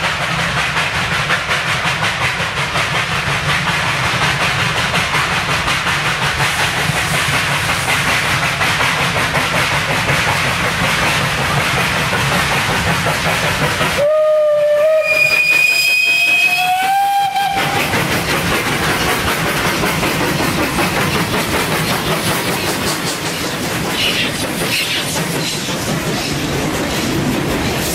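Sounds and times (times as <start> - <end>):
hissing steam: 0.0 - 27.9
steam locomotive exhaust beat: 0.0 - 27.9
steam whistle: 14.0 - 17.9.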